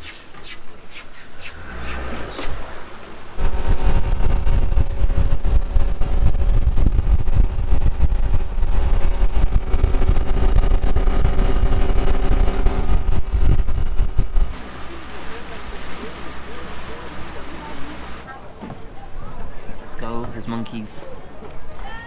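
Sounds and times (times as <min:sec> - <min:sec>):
speedboat engine running: 0:01.6 - 0:21.8
wind buffeting microphone: 0:03.4 - 0:20.4.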